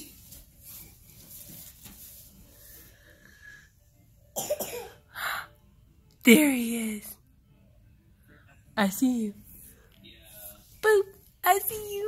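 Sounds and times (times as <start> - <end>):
faint breathing: 2.6 - 4.0.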